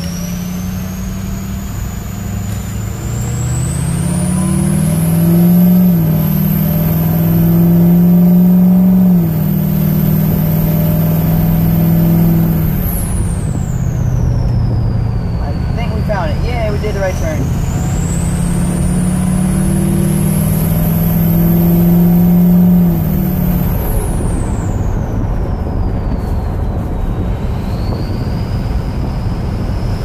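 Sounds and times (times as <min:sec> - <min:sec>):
diesel engine accelerating: 0:00.0 - 0:30.0
turbo whistle: 0:00.2 - 0:16.0.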